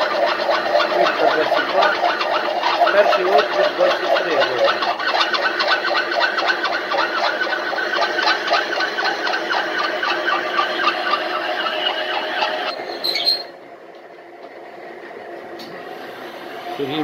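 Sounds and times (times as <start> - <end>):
drill bit chattering through metal: 0.0 - 13.5.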